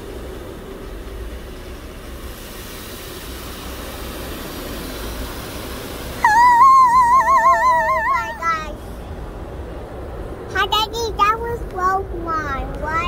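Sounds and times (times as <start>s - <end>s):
car wash water spraying: 0.0s - 8.8s
high warbling tone: 6.2s - 8.8s.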